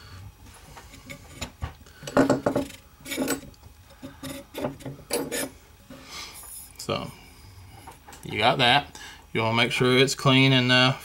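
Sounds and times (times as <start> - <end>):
metal tube clicking and scraping: 0.9 - 5.5.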